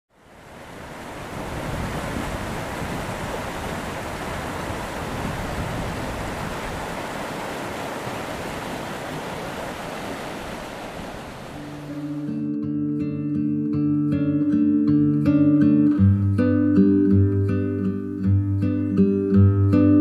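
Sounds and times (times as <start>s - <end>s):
stream rushing over rocks: 0.1s - 12.4s.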